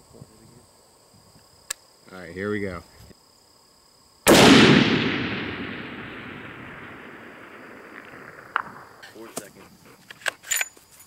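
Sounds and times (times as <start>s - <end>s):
rifle shot echoing: 4.3s - 9.1s.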